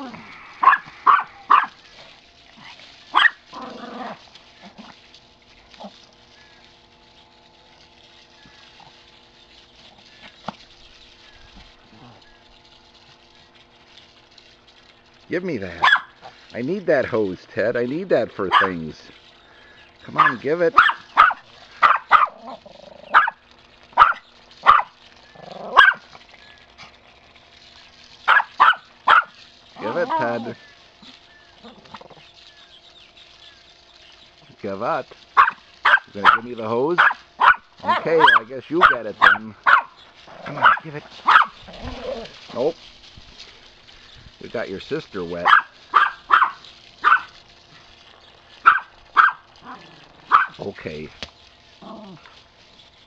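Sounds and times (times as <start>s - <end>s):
dog growling: 0.0s - 1.7s, 3.5s - 5.0s, 11.8s - 12.4s, 21.9s - 23.3s, 25.3s - 26.0s, 29.8s - 32.2s, 37.8s - 39.4s, 40.3s - 42.7s, 49.6s - 50.5s, 51.8s - 52.3s
small dog barking: 0.6s - 1.8s, 3.1s - 3.4s, 15.8s - 16.2s, 18.5s - 18.8s, 20.2s - 23.4s, 24.0s - 25.0s, 25.6s - 26.1s, 28.2s - 30.4s, 35.4s - 42.3s, 45.4s - 47.4s, 48.6s - 50.6s.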